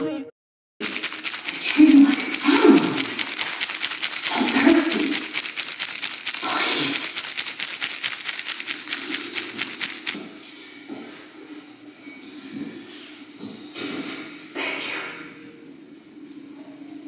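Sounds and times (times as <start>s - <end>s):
song with ticking beat: 0.8s - 10.2s.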